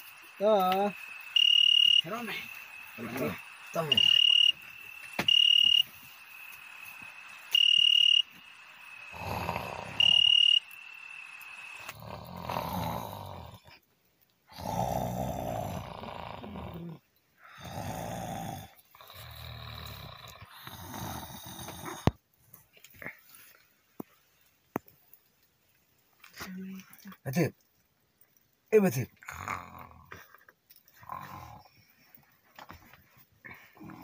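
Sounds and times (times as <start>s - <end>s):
steady high-pitched tone: 0.0s - 11.9s
beeps: 1.2s - 5.9s, 7.4s - 8.4s, 9.9s - 11.5s
person snoring: 9.1s - 10.2s, 11.7s - 13.7s, 14.5s - 22.1s.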